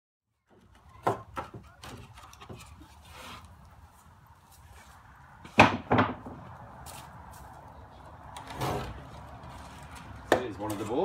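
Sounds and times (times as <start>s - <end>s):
wooden boards knocking: 0.5s - 2.6s, 5.4s - 6.4s
wooden boards rubbing and clicking: 0.5s - 3.5s.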